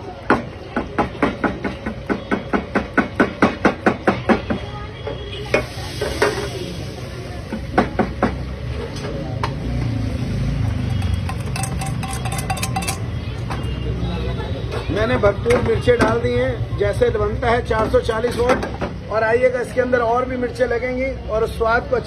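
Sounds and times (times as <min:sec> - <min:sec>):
whisk clinking on steel bowl: 0:10.9 - 0:13.1.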